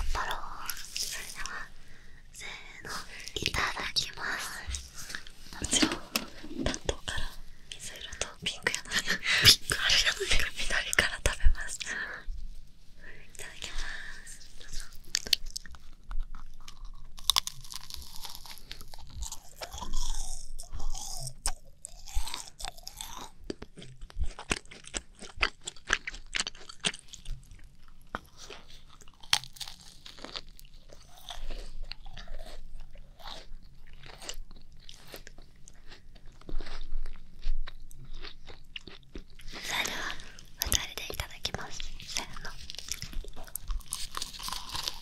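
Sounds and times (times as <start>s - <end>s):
soft chewing: 0.0s - 45.0s
macaron shells crunching: 15.1s - 32.6s, 42.2s - 45.0s.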